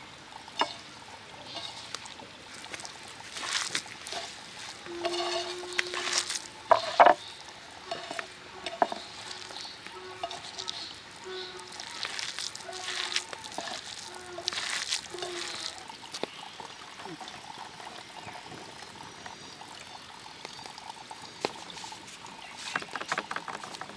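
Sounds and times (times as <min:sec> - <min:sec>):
hands squelching wet vegetables: 0:01.5 - 0:07.0, 0:07.8 - 0:16.4.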